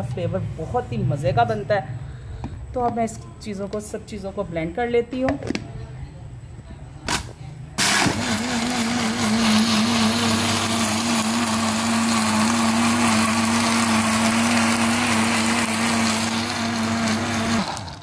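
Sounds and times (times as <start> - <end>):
electric blender running: 7.8 - 18.0.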